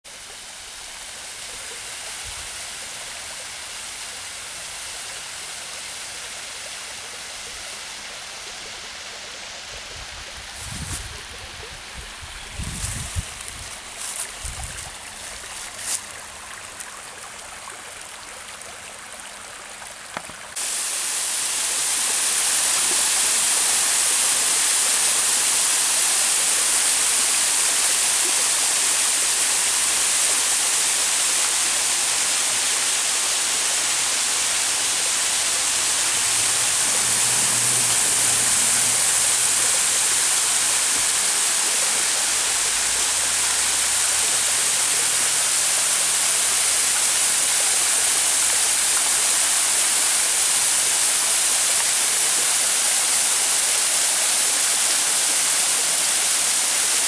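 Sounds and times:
creek trickling over stones: 0:00.2 - 0:57.0
waterfall rushing: 0:19.8 - 0:57.0.

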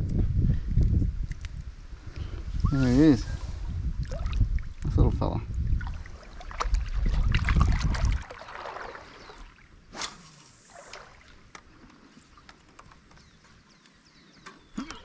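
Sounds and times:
water splashing and trickling: 0:02.6 - 0:13.7.

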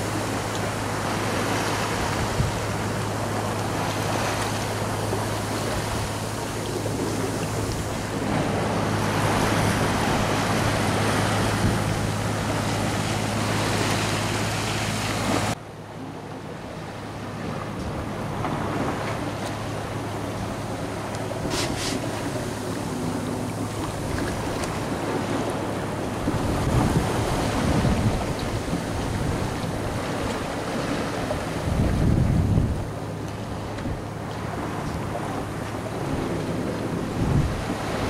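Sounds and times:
wind on microphone: 0:00.0 - 0:15.6, 0:21.3 - 0:38.0
boat engine droning: 0:00.0 - 0:38.0
water rushing past hull: 0:00.0 - 0:38.0.

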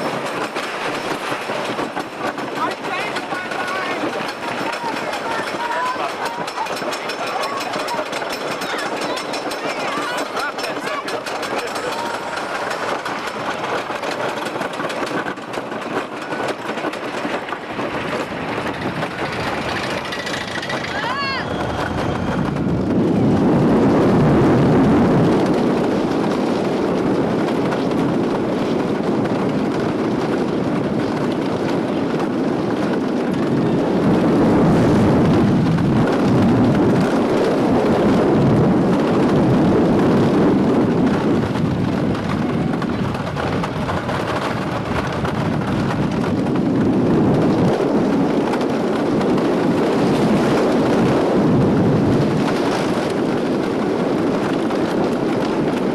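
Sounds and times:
roller coaster rumbling on wooden track: 0:00.0 - 0:55.9
rushing air: 0:08.1 - 0:29.9.

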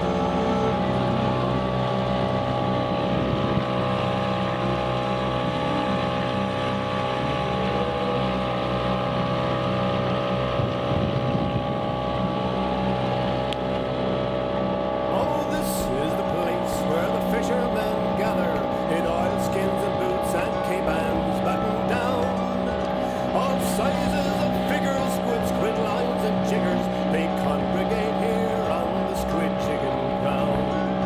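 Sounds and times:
outboard motor running: 0:00.0 - 0:31.0
wind on microphone: 0:01.0 - 0:04.6, 0:10.2 - 0:13.3.

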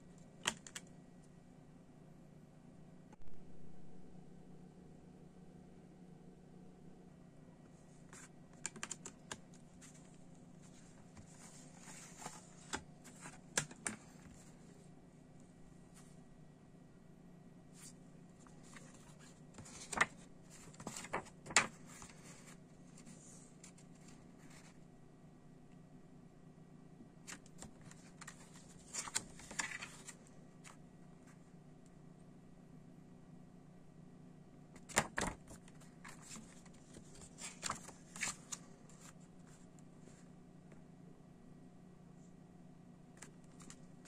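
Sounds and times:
low steady hum: 0:00.0 - 0:44.0
paper booklet pages rustling: 0:07.9 - 0:14.8, 0:17.8 - 0:24.8, 0:27.3 - 0:31.4, 0:34.8 - 0:40.2.

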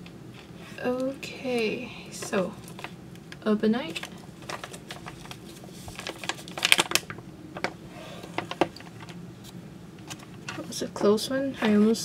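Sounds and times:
coffee bag crinkling: 0:03.9 - 0:07.2.

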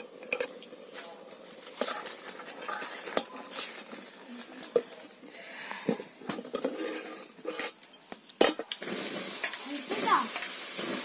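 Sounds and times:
metal pot clanking and knocking: 0:00.0 - 0:00.7, 0:08.4 - 0:09.6.

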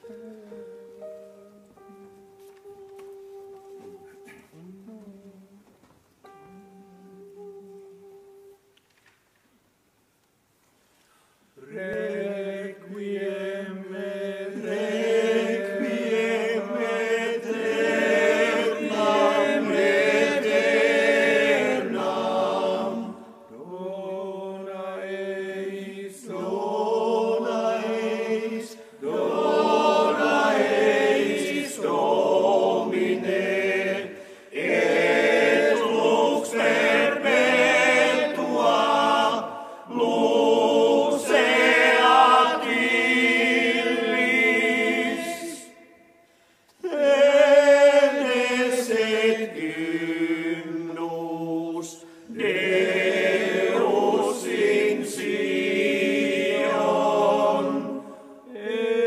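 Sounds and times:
men's choir singing: 0:11.6 - 0:46.1, 0:46.8 - 0:59.0.

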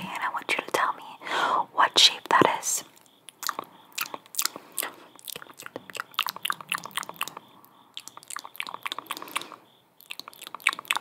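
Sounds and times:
wet mouth clicks and smacks: 0:03.0 - 0:11.0.

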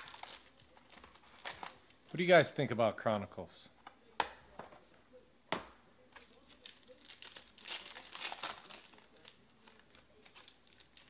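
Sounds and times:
foil wrapper crinkling and tearing: 0:00.0 - 0:01.8, 0:06.3 - 0:11.0.

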